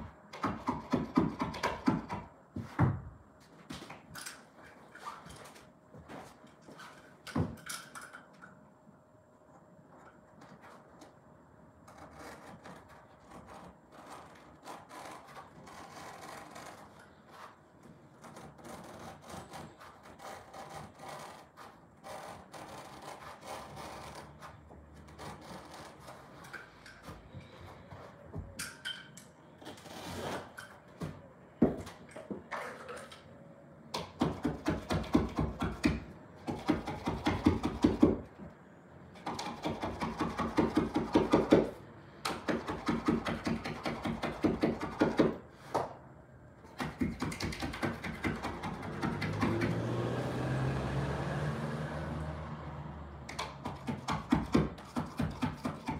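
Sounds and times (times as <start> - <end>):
blade sawing through carpet: 11.9 - 26.5
carpet rubbing and scraping: 11.9 - 28.4.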